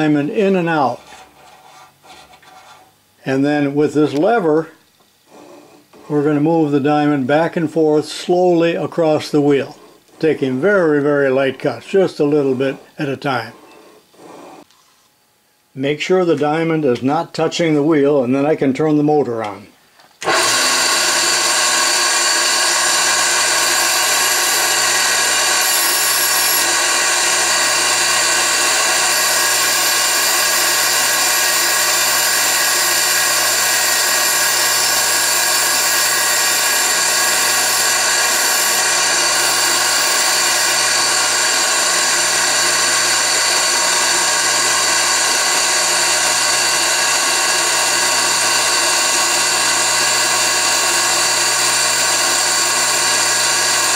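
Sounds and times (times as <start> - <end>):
grinder motor whining: 20.2 - 53.9.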